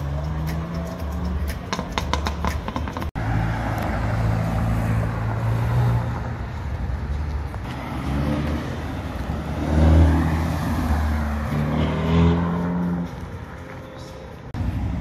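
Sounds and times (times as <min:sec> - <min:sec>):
music: 0:00.0 - 0:03.1.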